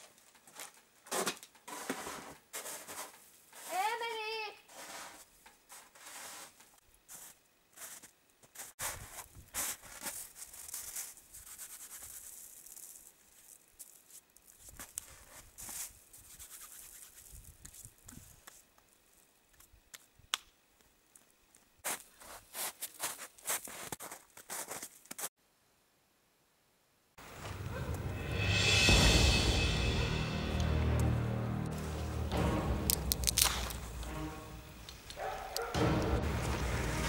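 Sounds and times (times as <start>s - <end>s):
footsteps crunching in snow: 0.0s - 18.6s, 21.8s - 25.3s, 33.0s - 37.0s
rustling: 0.0s - 19.7s.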